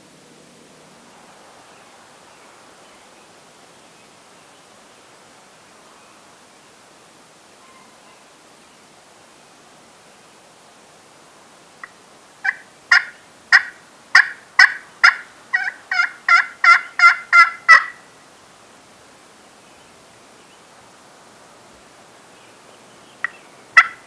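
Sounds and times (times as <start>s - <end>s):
wild turkey calling: 11.8s - 18.1s, 22.4s - 24.0s.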